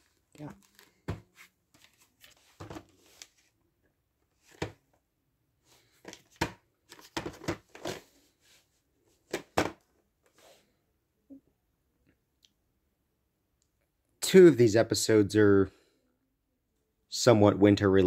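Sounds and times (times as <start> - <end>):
tape cases rustling and knocking: 0.1 - 3.5, 4.4 - 5.0, 5.9 - 8.1, 9.2 - 9.9.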